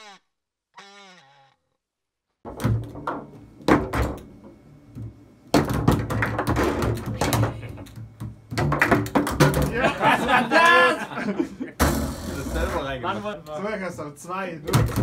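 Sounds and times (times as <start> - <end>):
foosball ball knocking: 2.5 - 9.8.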